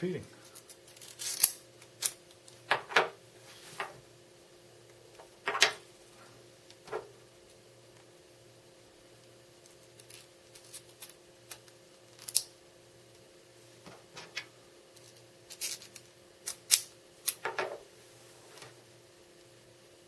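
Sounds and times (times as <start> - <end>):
magnets and washers clicking together: 0.5 - 2.7, 9.6 - 12.5, 14.4 - 17.7.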